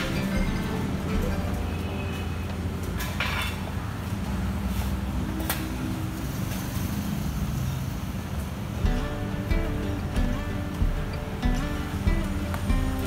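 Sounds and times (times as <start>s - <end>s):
low rumble of traffic: 0.0s - 13.0s.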